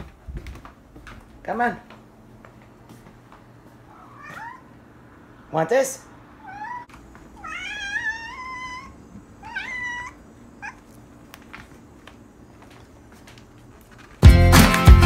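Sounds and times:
cat meowing: 3.9 - 4.7, 6.4 - 11.0.

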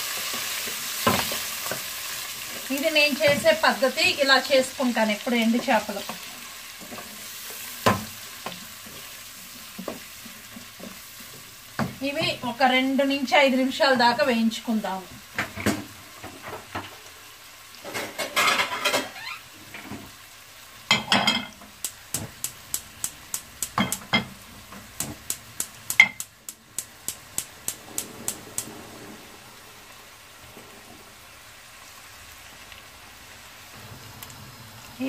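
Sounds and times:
food sizzling in hot oil: 0.0 - 35.0
quick regular ticks: 25.2 - 28.7.

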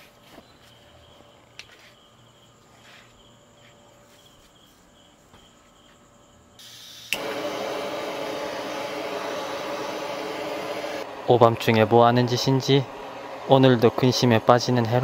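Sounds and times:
faint insect chirping: 0.0 - 7.1
torch igniter click: 6.6 - 8.1
butane torch hissing: 6.6 - 15.0.

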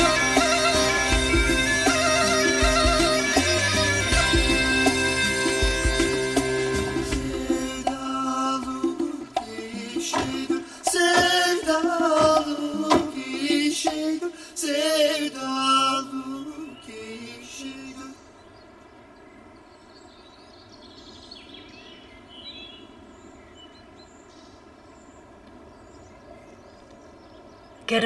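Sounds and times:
melismatic singing voice: 0.0 - 18.4.

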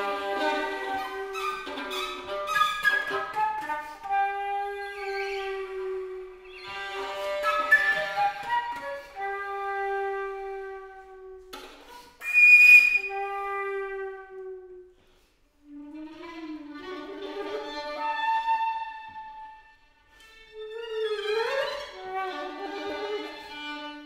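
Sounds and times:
flute: 0.0 - 16.7, 17.6 - 19.8
violin: 0.0 - 24.0.

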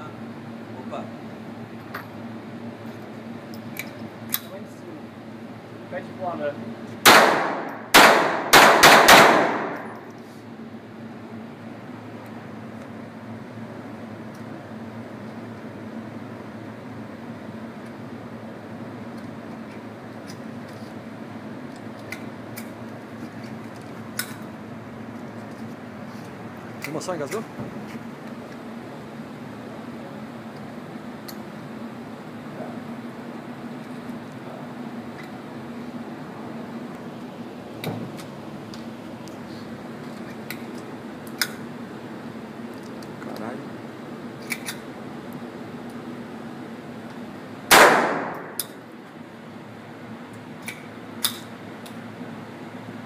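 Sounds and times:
background hum: 0.0 - 53.0
pistol metallic clicks: 3.7 - 4.5, 47.7 - 48.8, 50.6 - 52.0.

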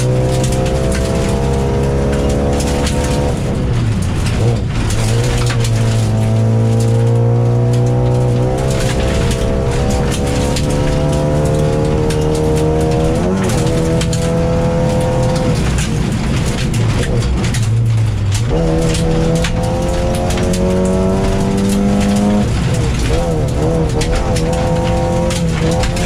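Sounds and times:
car engine revving hard: 0.0 - 26.0
gravel knocking on car underside: 7.4 - 26.0.

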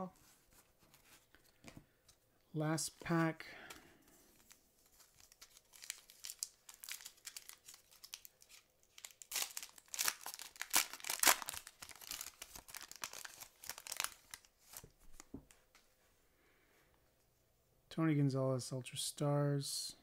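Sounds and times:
foil wrapper tearing and crinkling: 4.4 - 14.8.

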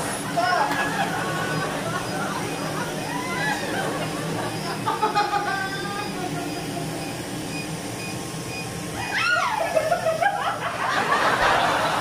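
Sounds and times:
woman squealing in pain: 3.1 - 3.7, 9.0 - 9.9.

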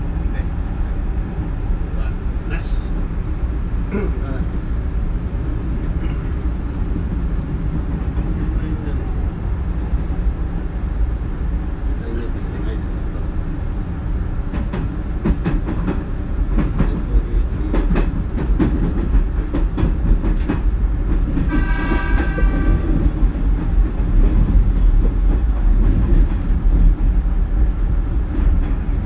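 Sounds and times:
train low rumble: 0.0 - 29.0
wheels clacking over rail joints: 14.5 - 27.2.

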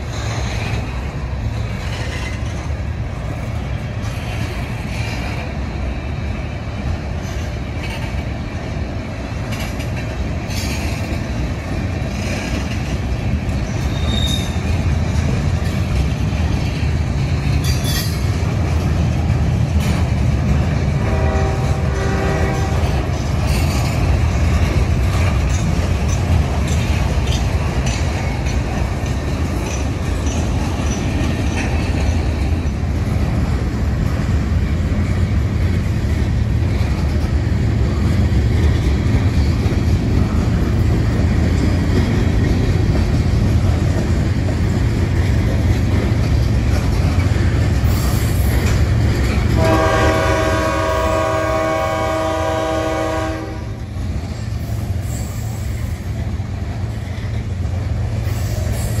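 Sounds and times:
train wheels rumbling on rails: 0.0 - 59.0
train horn: 20.9 - 23.1, 49.5 - 54.0.

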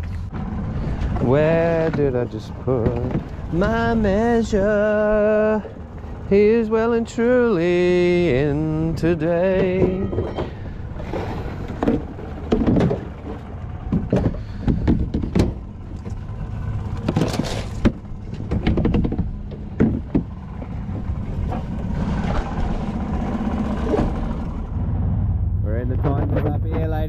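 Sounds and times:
outboard motor idling: 0.0 - 27.0
knocks and clunks on board: 1.0 - 3.9, 9.4 - 22.5.

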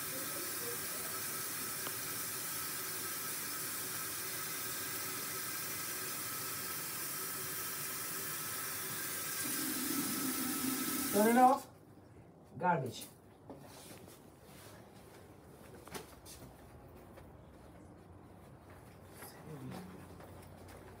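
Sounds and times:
tap water running into basin: 0.0 - 11.6.

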